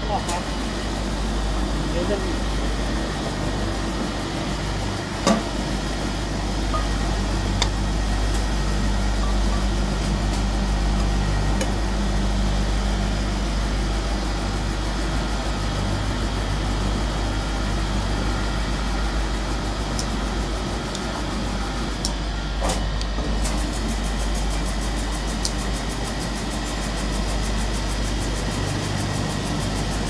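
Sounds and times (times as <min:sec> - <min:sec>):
polishing heads whirring: 0:00.0 - 0:22.6
motors humming: 0:00.0 - 0:30.0.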